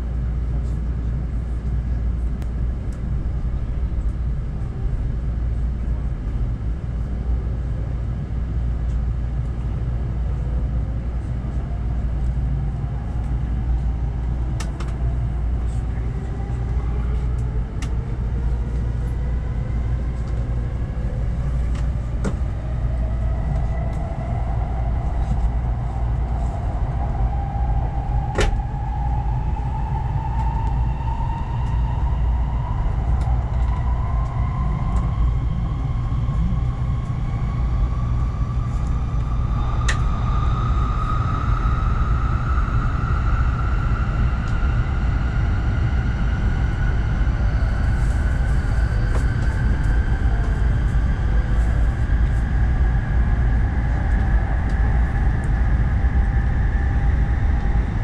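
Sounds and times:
low train rumble: 0:00.0 - 0:58.0
train motor whine rising: 0:21.6 - 0:58.0.

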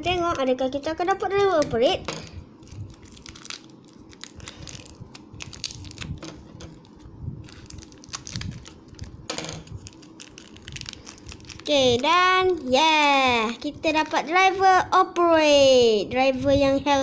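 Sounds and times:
plastic wrapper crinkling: 0:02.5 - 0:14.3.

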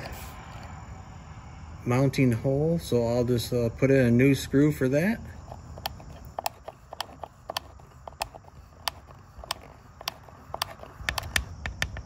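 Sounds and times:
screwdriver turning screw clicks: 0:05.4 - 0:11.5.

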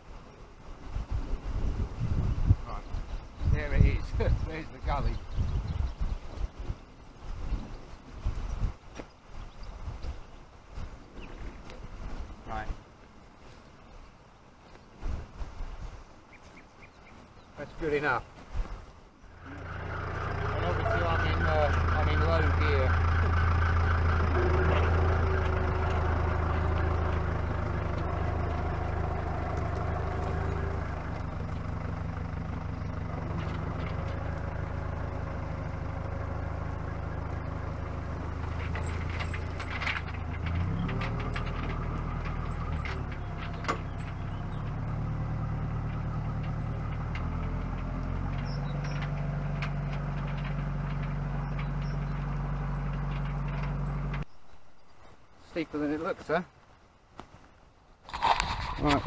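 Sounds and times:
tractor diesel engine running: 0:19.3 - 0:55.1, 0:58.1 - 0:59.0.

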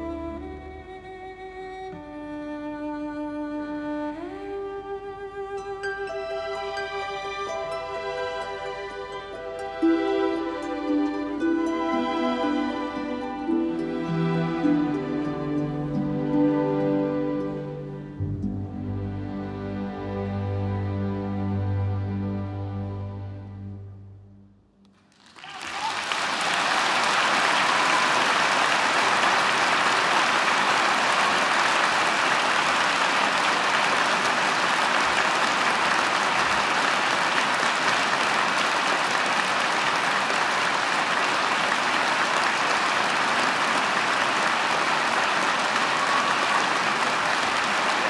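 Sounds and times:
audience applause: 0:25.0 - 0:48.0.

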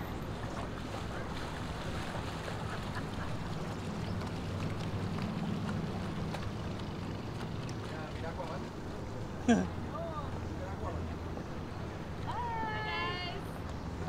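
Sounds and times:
boat engine humming: 0:00.0 - 0:14.0
water noise: 0:00.0 - 0:14.0
wind: 0:00.0 - 0:14.0.

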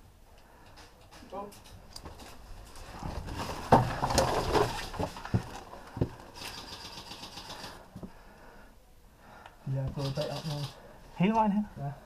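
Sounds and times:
sharp knocks and bumps: 0:03.0 - 0:06.2
rapid mechanical rattle: 0:06.4 - 0:07.8.

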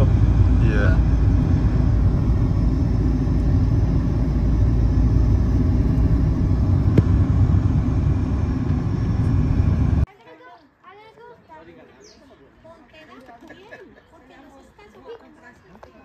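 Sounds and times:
vehicle rumble: 0:00.0 - 0:10.1.

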